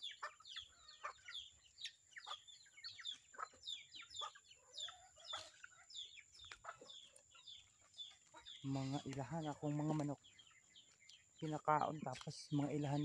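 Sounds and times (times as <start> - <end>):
chickens clucking and peeping: 0.0 - 13.0.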